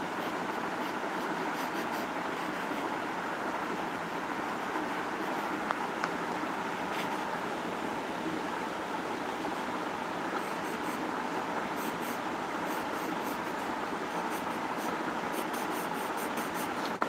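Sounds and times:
steady background noise: 0.0s - 17.0s
pencil sketching on paper: 0.1s - 3.0s, 10.4s - 11.0s, 11.7s - 16.8s.

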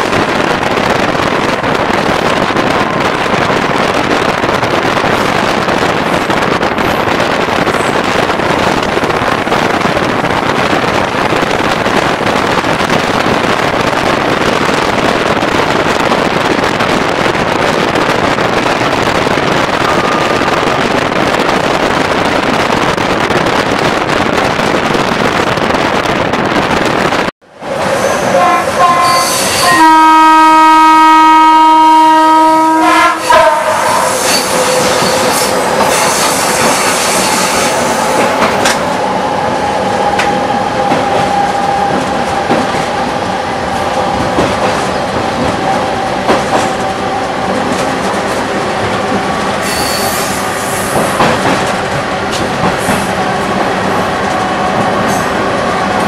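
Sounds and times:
train running on track: 0.0s - 56.0s
train horn blast: 28.0s - 37.7s.

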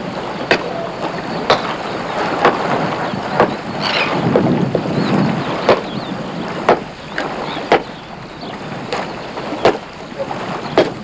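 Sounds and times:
water at shoreline: 0.0s - 11.0s
wind: 0.0s - 11.0s
faint high bird calls: 3.0s - 4.3s, 4.9s - 10.8s
sharp knocks: 6.6s - 7.9s, 8.9s - 9.9s, 10.8s - 11.0s.

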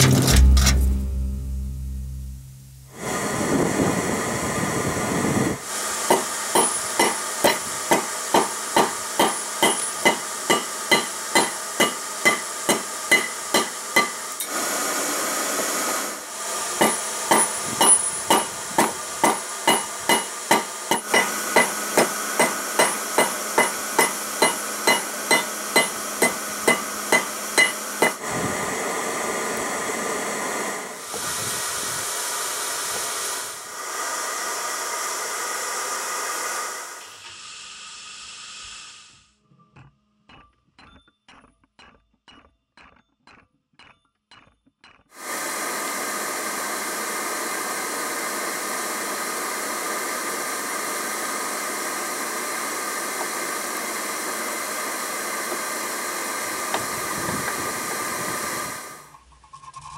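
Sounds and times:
hammer ringing on metal anvil: 8.4s - 14.2s, 22.4s - 28.2s.

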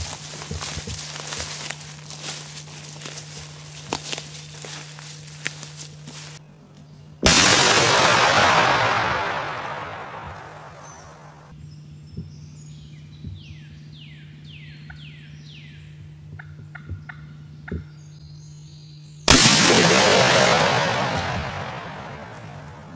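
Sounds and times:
shotgun blast with echo: 7.3s - 11.5s, 19.3s - 22.9s.

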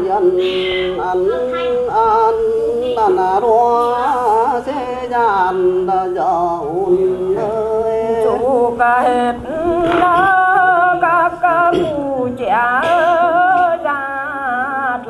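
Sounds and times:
person singing folk song: 0.0s - 15.0s.

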